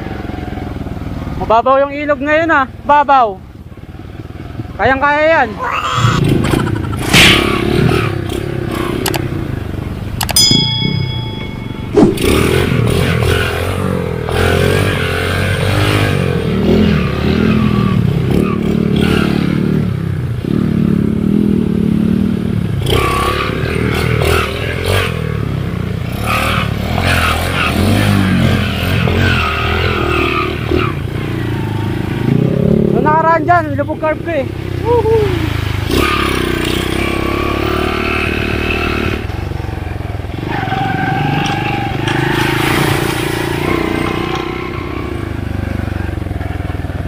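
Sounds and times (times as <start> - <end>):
dirt bike engine revving: 6.0 - 46.8
short bell-like chime: 10.4 - 12.6.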